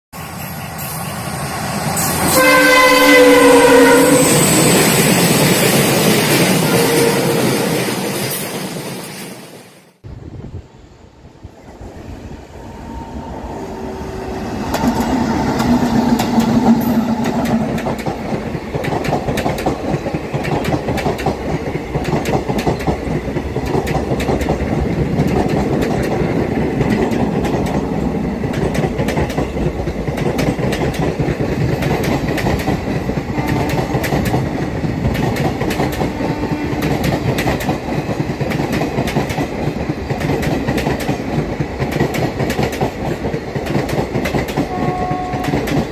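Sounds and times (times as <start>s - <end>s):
locomotive passing: 0.2s - 45.9s
train coaches rumbling: 0.2s - 45.9s
wheels clickety-clack over rail joints: 14.7s - 45.9s.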